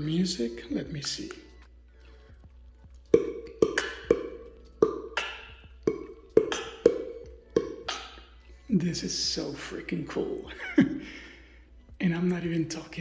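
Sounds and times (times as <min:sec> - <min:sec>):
sharp percussive hits with ringing: 0:03.2 - 0:08.2.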